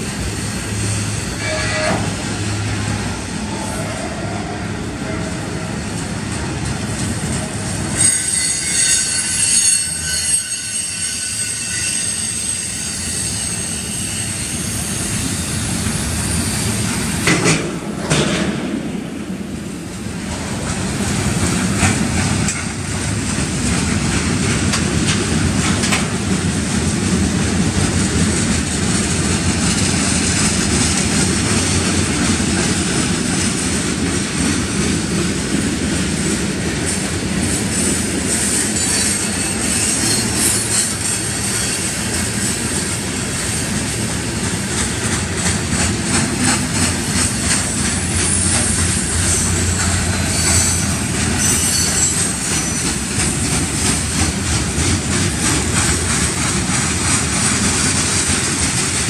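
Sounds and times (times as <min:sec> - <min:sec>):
train wheels rumbling on rails: 0:00.0 - 0:59.0
high-pitched wheel squeal: 0:08.0 - 0:16.8, 0:38.5 - 0:42.2, 0:48.2 - 0:53.0
clacking over rail joints: 0:17.2 - 0:18.8, 0:20.3 - 0:35.7, 0:44.4 - 0:59.0.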